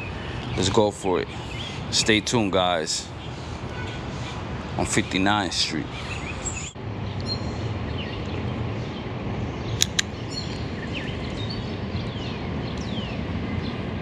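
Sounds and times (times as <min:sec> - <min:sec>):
birds whistling: 0:00.0 - 0:02.0, 0:05.0 - 0:13.8
sharp clicks: 0:09.8 - 0:10.1.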